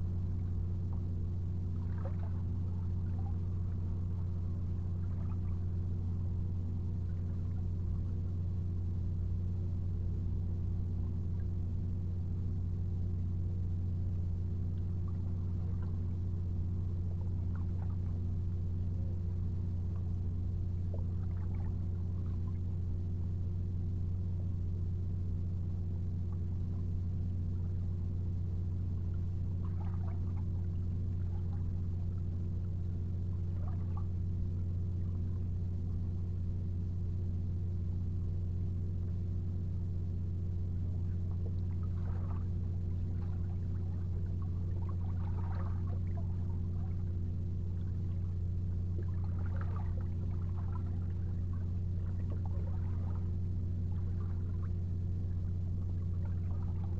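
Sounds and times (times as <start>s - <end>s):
low mechanical hum: 0.0s - 56.9s
faint light ticks: 14.7s - 16.0s.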